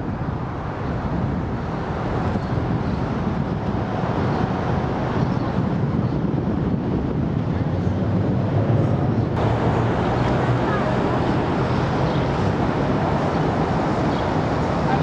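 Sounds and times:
wind buffeting microphone: 0.0s - 15.0s
river noise: 8.4s - 15.0s.

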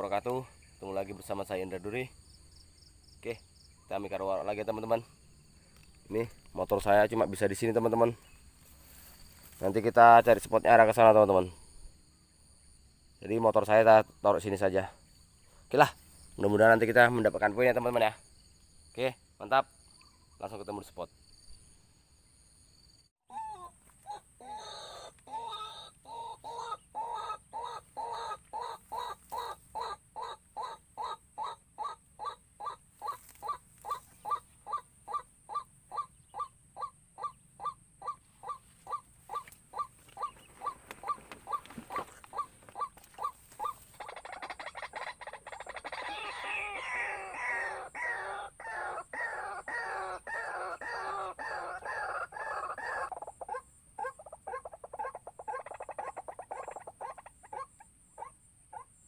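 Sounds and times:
waterhen calling: 23.3s - 57.8s.

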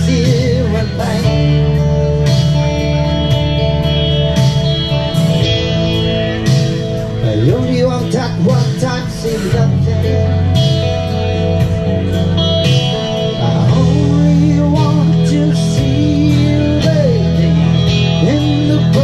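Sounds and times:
man singing: 0.0s - 1.9s, 7.2s - 11.0s, 13.1s - 19.0s
amplified guitar: 0.0s - 19.0s
steady bass: 0.0s - 19.0s.

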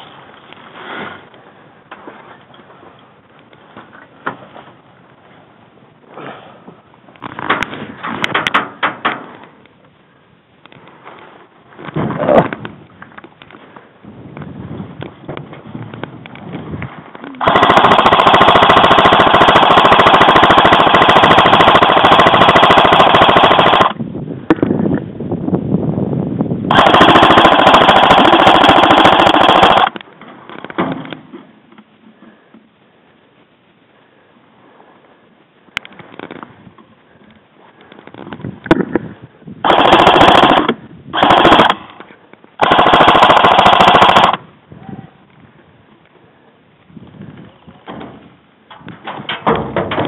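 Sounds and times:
airsoft rifle full-auto burst: 17.4s - 24.0s, 26.7s - 30.0s, 39.6s - 41.9s, 42.6s - 44.4s.

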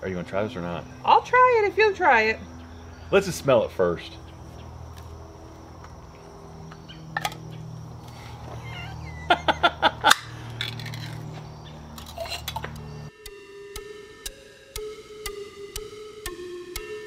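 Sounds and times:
hard objects clinking: 10.1s - 12.8s
music: 12.6s - 17.0s.

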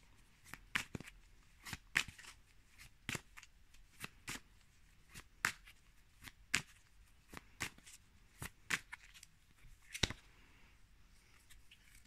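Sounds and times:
cards being shuffled: 0.4s - 4.5s, 5.1s - 10.2s.

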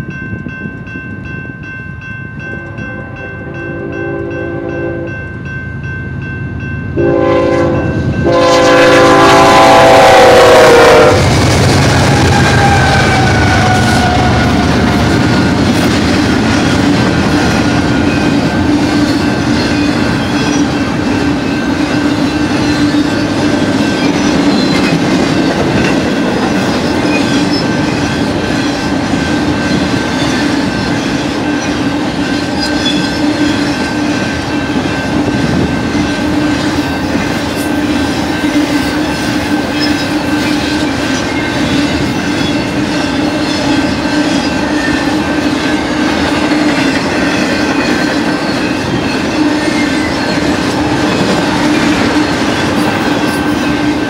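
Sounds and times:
freight train wheels rumbling: 0.0s - 54.0s
wheels clickety-clack: 11.4s - 54.0s.

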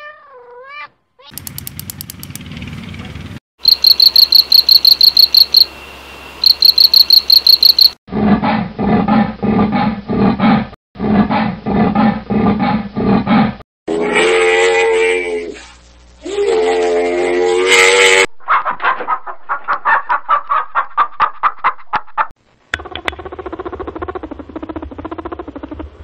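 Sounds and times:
high-pitched chirping pulses: 3.6s - 5.8s, 6.4s - 8.0s.

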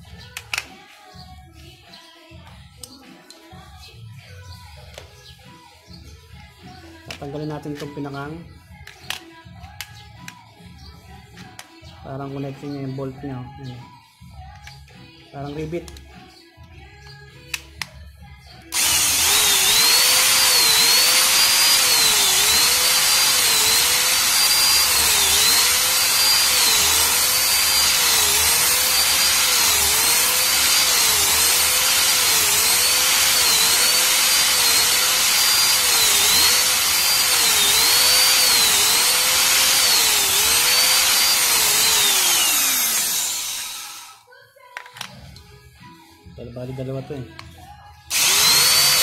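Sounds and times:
electric drill whining: 18.7s - 44.2s, 48.1s - 49.0s.

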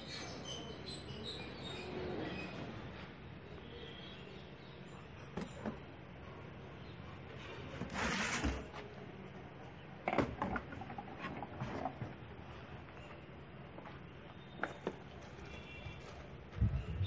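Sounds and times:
noisy rustling: 10.6s - 17.0s.

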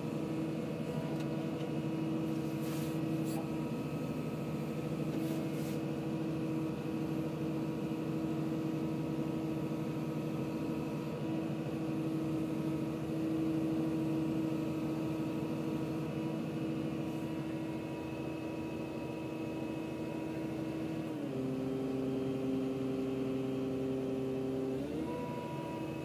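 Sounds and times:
excavator engine drone: 0.0s - 26.0s.

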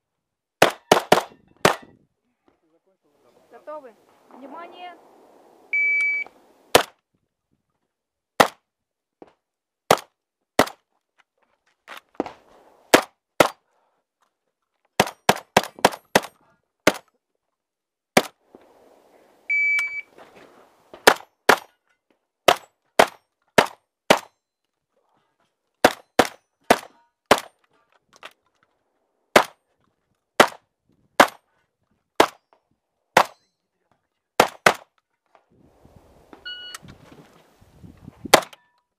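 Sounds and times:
shotgun shots: 0.6s - 1.9s, 6.4s - 6.9s, 8.4s - 8.6s, 21.0s - 21.7s, 25.8s - 27.5s, 29.3s - 29.6s, 34.4s - 34.9s
shot timer beep: 5.8s - 6.3s, 19.5s - 20.1s, 36.4s - 36.8s.

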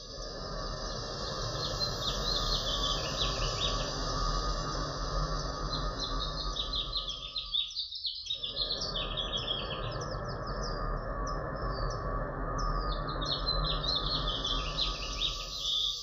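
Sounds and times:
low noisy drone: 0.0s - 7.7s, 8.4s - 16.0s
faint steady hum: 0.0s - 16.0s
high falling bird chirps: 1.0s - 10.8s, 12.6s - 16.0s.

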